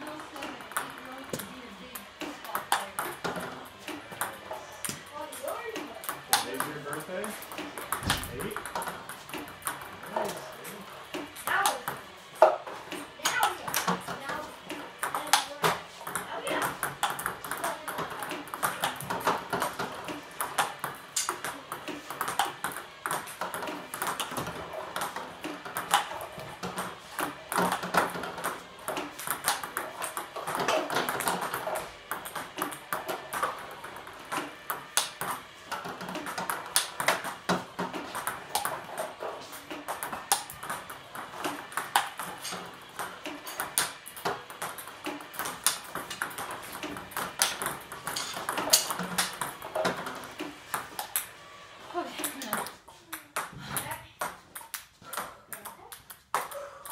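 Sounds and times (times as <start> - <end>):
ping pong ball knocks: 6.0 - 10.3.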